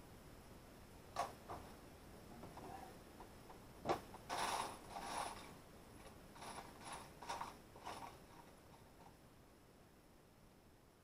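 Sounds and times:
ratchet-like scraping: 4.3 - 5.6, 6.3 - 9.1.

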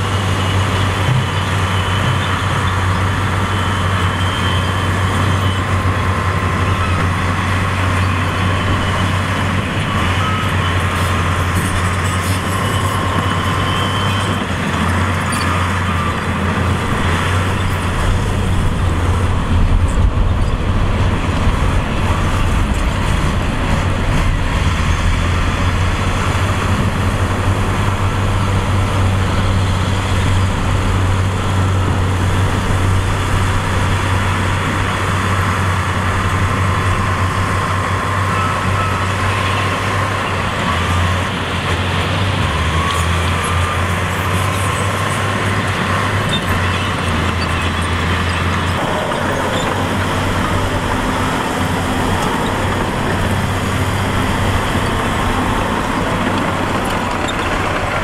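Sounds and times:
diesel engines droning under load: 0.0 - 58.0
deep rumble: 16.9 - 33.8.

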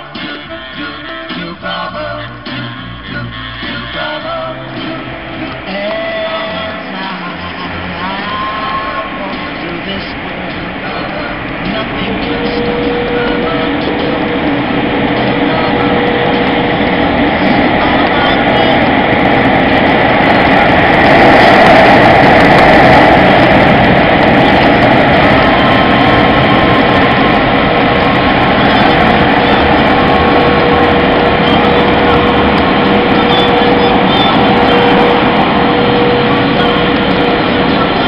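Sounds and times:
air blowers rushing: 0.0 - 38.0
steady hum: 0.0 - 38.0.

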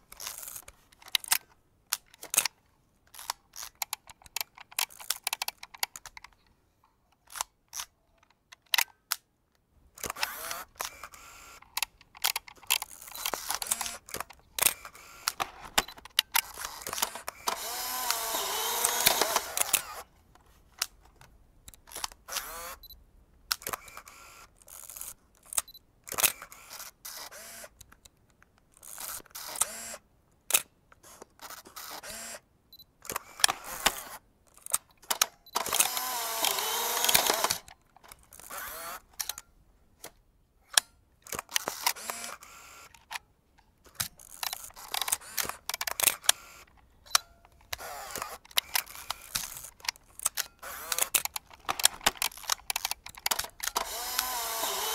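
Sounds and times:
camera shutter and lever clicks: 0.0 - 6.6, 7.2 - 9.3, 9.9 - 54.9
camera mechanism whirring: 0.1 - 1.4, 3.1 - 6.1, 10.0 - 20.1, 21.8 - 22.9, 23.5 - 27.8, 28.8 - 32.4, 33.0 - 39.4, 40.7 - 43.2, 43.9 - 54.9.

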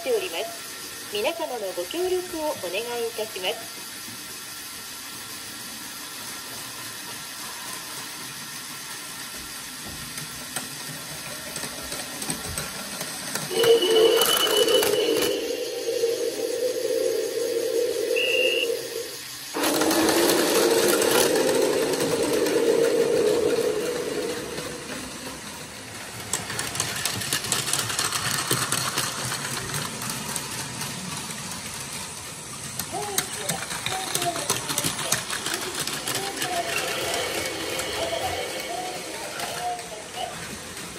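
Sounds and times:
toy trains whirring on track: 0.0 - 40.9
high steady tone: 13.5 - 19.3.

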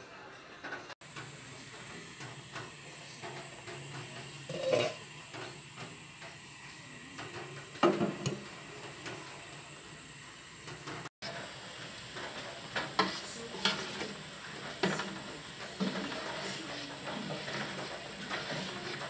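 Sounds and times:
gas burner hissing: 0.1 - 19.0
metal pot and lid clanks: 3.8 - 5.2.

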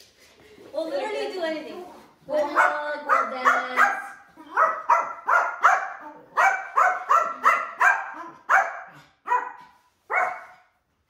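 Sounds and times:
small dog barking: 2.5 - 10.7.

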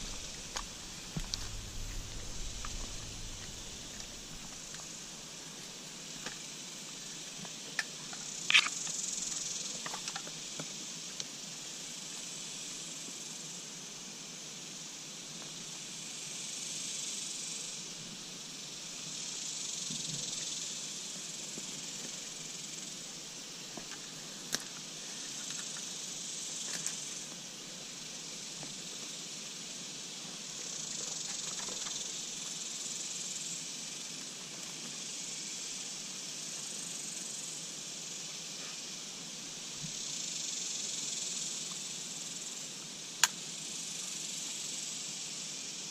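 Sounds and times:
insects droning: 0.0 - 45.9.

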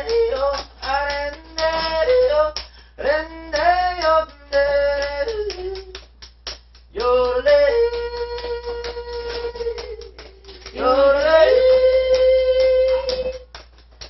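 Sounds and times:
man yodeling: 7.1 - 10.2, 10.8 - 13.4.

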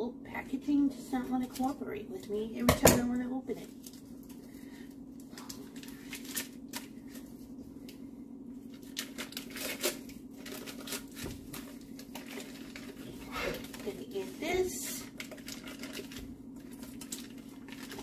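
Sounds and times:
wrapper crinkling and tearing: 5.2 - 7.4, 8.7 - 18.0.

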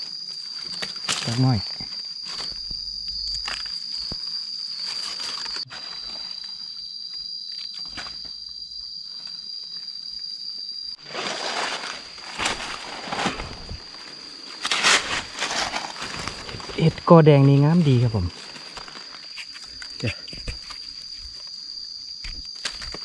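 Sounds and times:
rustling in dry leaves: 0.0 - 6.7, 11.0 - 21.7
high-pitched insect drone: 0.0 - 23.0.

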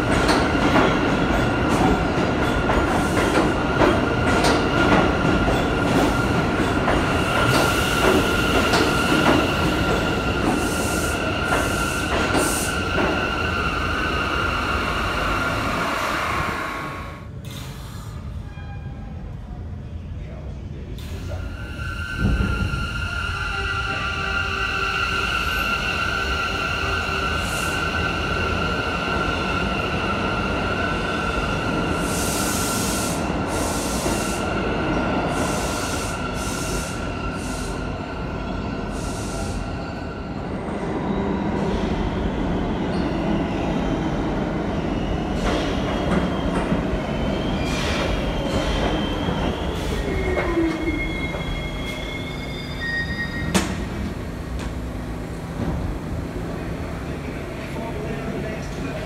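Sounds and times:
subway train high whine: 0.0 - 59.0
train slowing to a stop: 0.0 - 59.0
train wheels squealing: 17.5 - 19.2, 42.7 - 44.0, 44.8 - 53.8.

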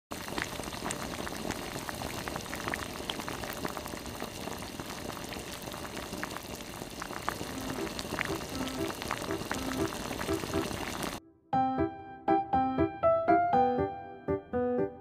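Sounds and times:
broth boiling and bubbling: 0.1 - 11.2.

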